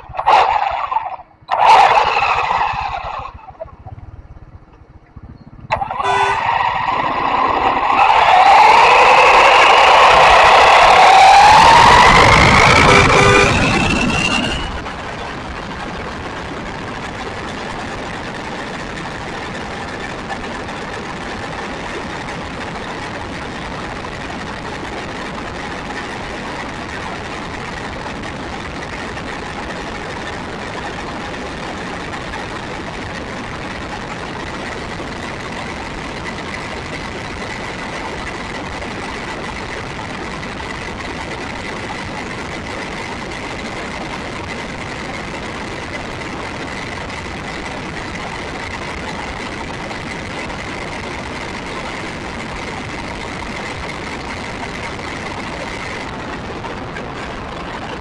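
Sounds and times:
motor and gears whining: 0.0 - 14.9
tyre and wind noise: 0.0 - 58.0.

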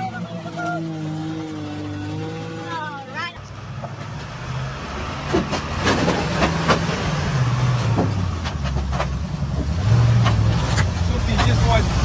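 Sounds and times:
heavy truck engine at low revs: 0.0 - 12.0
timbers cracking and knocking: 5.0 - 7.2, 7.8 - 11.6.

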